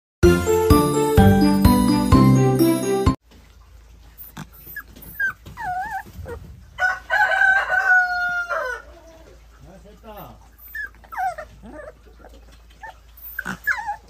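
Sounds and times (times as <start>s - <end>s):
puppy whining in high squeaks: 4.2s - 6.4s, 10.5s - 14.0s
puppy howling: 4.6s - 6.4s, 10.6s - 14.0s.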